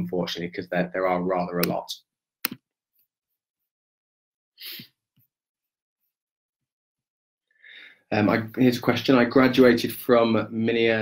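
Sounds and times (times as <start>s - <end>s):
soft breath: 7.5s - 8.1s.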